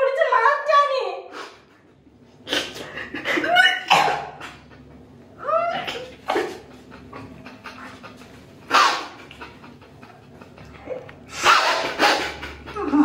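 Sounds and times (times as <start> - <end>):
panting breaths: 1.3 - 3.5, 5.9 - 13.0.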